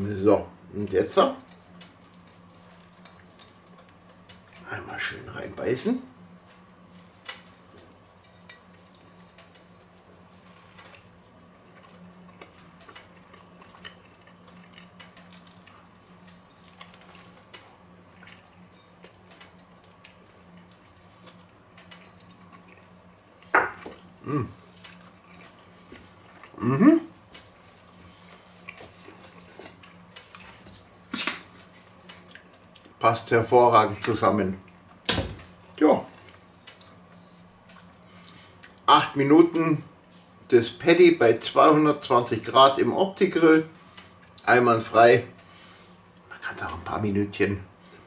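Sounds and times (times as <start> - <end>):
faint steady hum: 0.0 - 48.0
chewing clicks: 10.8 - 23.0.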